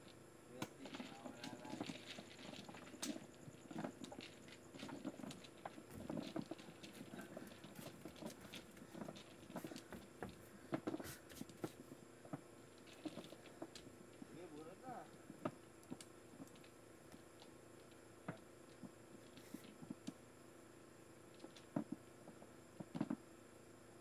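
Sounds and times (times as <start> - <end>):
small taps and knocks: 0.6 - 14.3, 15.2 - 20.2, 21.4 - 23.2
faint rustling: 0.8 - 15.6.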